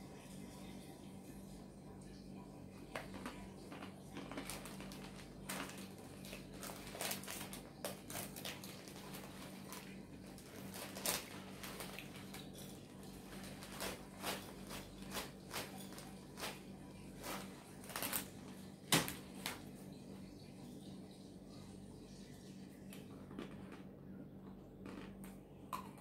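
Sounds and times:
plastic bag crinkling: 0:03.0 - 0:19.6.

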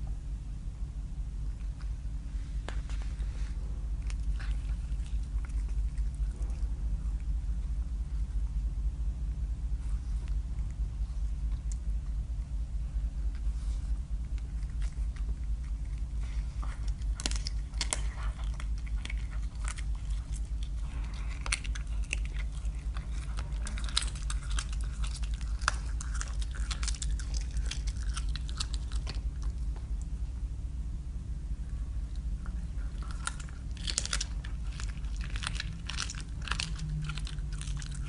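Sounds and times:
steady low hum: 0:00.0 - 0:38.0
animal chewing raw meat: 0:01.6 - 0:08.4, 0:13.2 - 0:30.2, 0:32.0 - 0:38.0.

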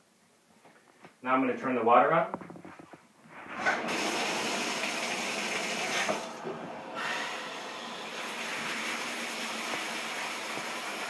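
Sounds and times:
shower water spraying and splashing: 0:03.5 - 0:11.0.

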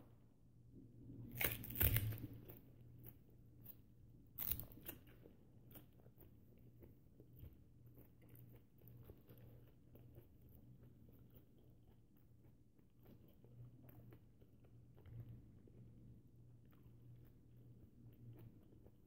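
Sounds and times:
person chewing: 0:04.4 - 0:15.9.

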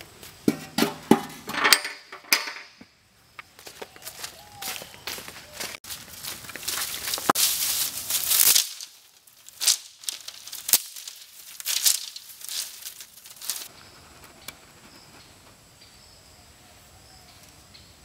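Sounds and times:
dry sticks rustling and crackling: 0:03.6 - 0:14.6.

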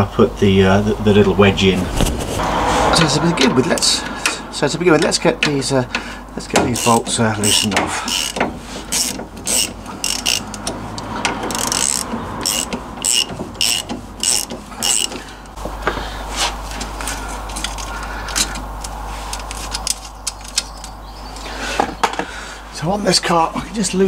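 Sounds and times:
socket ratchet clicking: 0:06.8 - 0:15.1.

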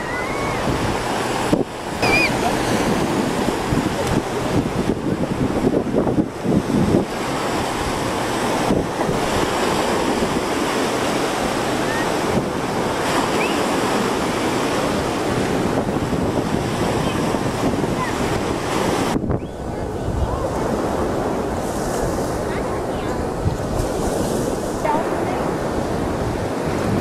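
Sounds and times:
surf washing on beach: 0:00.0 - 0:27.0
wind buffeting microphone: 0:00.0 - 0:27.0.

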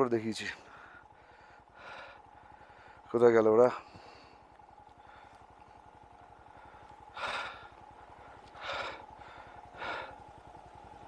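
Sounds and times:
faint motorcycle engine pulsing: 0:00.0 - 0:11.0
heavy breaths: 0:00.5 - 0:11.0.

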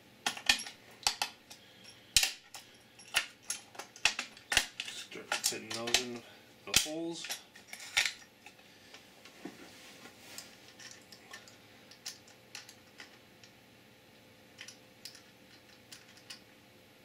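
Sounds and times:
metal nuts clicking on plates: 0:00.2 - 0:08.6, 0:14.6 - 0:16.5.

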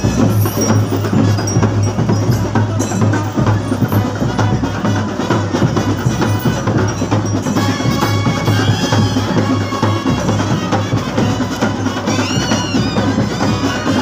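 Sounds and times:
ringing metallic tones: 0:00.0 - 0:10.2
fast drumming: 0:00.0 - 0:14.0.

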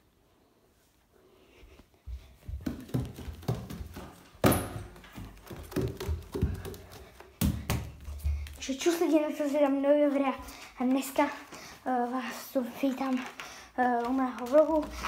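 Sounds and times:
bare footsteps on wooden floor: 0:01.8 - 0:09.3.

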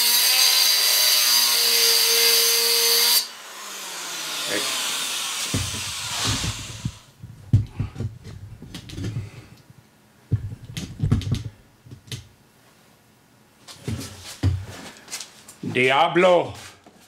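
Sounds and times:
handling knocks taps and clicks: 0:06.8 - 0:09.7, 0:10.3 - 0:12.3.

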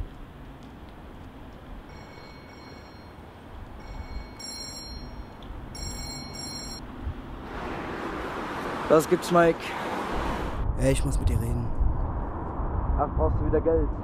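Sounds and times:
street rumble: 0:00.0 - 0:14.0
mobile phone ringtone: 0:01.9 - 0:03.2, 0:03.8 - 0:06.8.

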